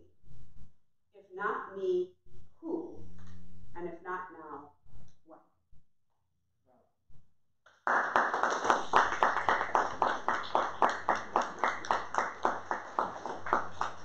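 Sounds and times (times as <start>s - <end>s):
audience applauding: 7.7s - 14.0s.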